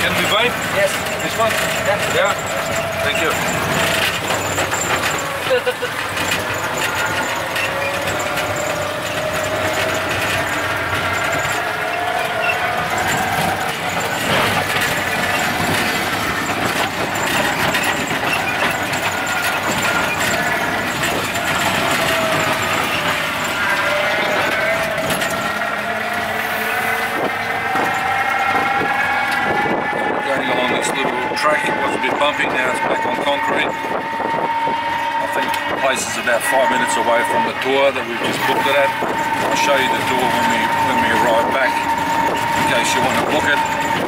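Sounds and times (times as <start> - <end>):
cabin rattling: 0.0 - 29.4
electric motor whining: 0.0 - 44.0
road noise: 0.0 - 44.0.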